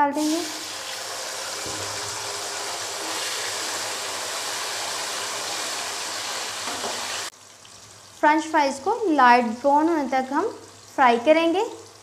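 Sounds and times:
fries sizzling in hot oil: 0.0 - 12.0.

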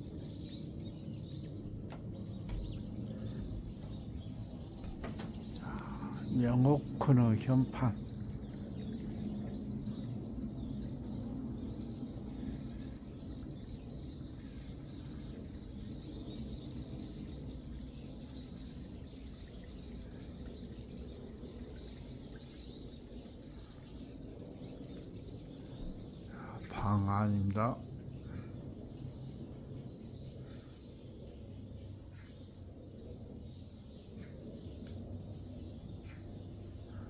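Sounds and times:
low steady rumble: 0.0 - 37.0
small birds chirping: 0.0 - 37.0.

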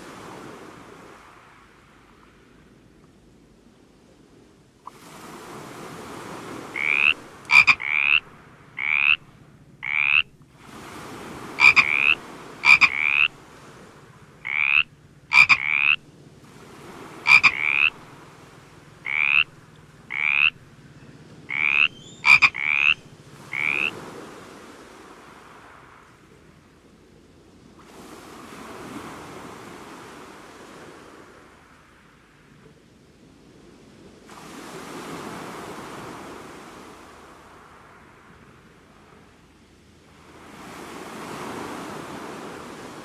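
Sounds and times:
frog croaking: 6.5 - 10.5, 11.4 - 13.5, 14.3 - 16.0, 17.1 - 18.2, 18.9 - 24.0.

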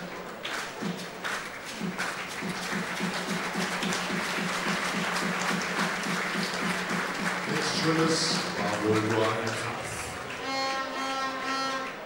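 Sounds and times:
stadium crowd clapping: 0.0 - 12.0
rhythmic beat: 0.5 - 9.5.

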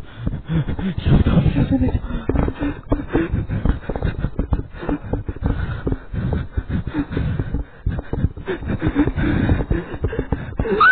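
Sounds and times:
person breathing raggedly: 0.0 - 10.9
mouth noises: 0.2 - 10.9
low voiced sounds: 0.6 - 2.5.

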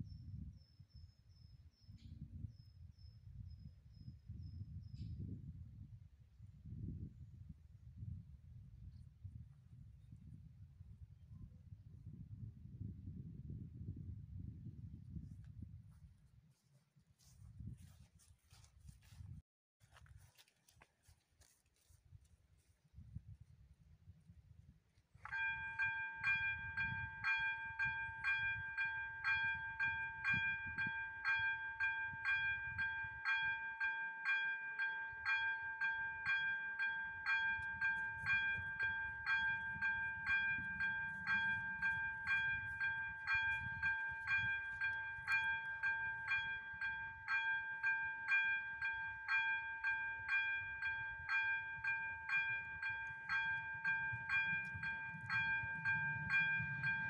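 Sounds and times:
level crossing bell ringing: 25.3 - 57.0.

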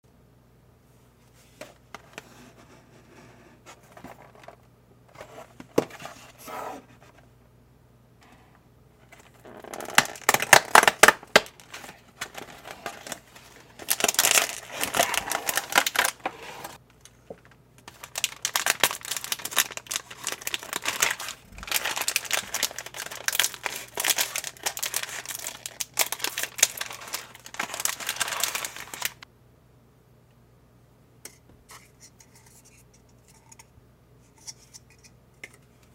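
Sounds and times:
plastic packaging crinkling: 9.1 - 29.2.

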